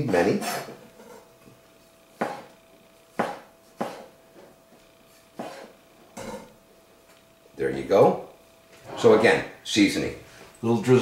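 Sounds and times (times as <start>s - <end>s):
knife chopping on cutting board: 2.2s - 2.5s, 3.1s - 4.1s, 5.4s - 5.7s.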